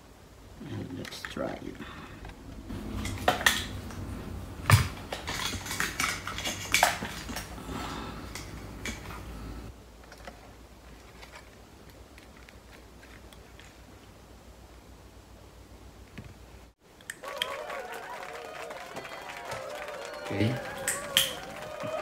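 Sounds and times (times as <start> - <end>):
small parts clicking and rattling: 4.7 - 7.6, 10.0 - 14.0.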